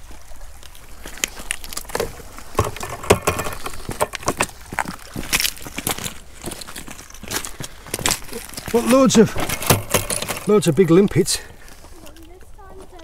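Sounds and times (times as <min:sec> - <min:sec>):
footsteps on shingle: 0:00.0 - 0:13.0
shells knocking in plastic bucket: 0:02.6 - 0:04.5.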